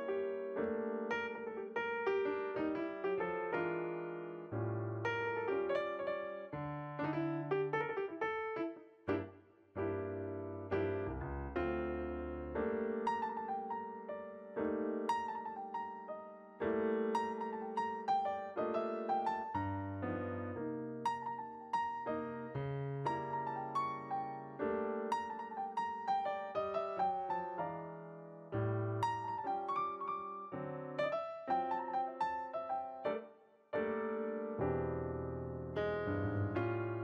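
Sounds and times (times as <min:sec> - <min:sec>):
piano music: 0:00.0 - 0:37.0.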